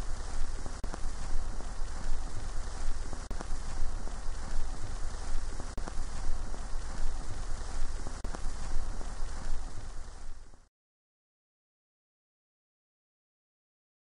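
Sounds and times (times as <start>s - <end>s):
sharp record click: 0.0s - 9.8s
vinyl crackle and hiss: 0.0s - 10.7s.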